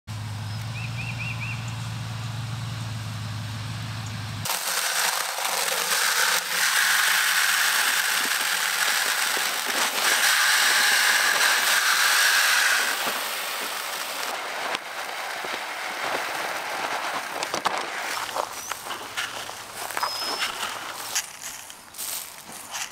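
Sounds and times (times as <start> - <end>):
truck engine idling: 0.1 - 10.2
seed pouring into plastic bucket: 4.5 - 21.2
seed pattering on soil: 13.1 - 22.9.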